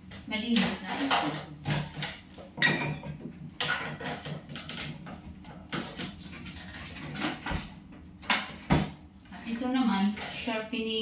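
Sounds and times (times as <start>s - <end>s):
objects knocking on a shelf: 6.9s - 9.0s.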